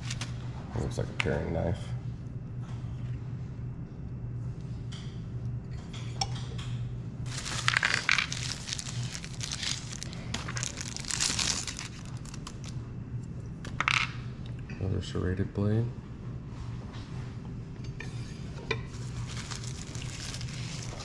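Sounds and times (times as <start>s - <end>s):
bubble wrap crinkling: 0.0s - 0.3s, 7.2s - 12.8s, 18.9s - 21.0s
steady low hum: 0.0s - 21.0s.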